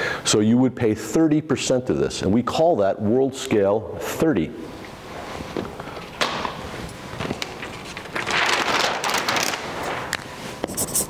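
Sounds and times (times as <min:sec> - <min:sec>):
paper rustling and crackling: 0:06.0 - 0:11.0.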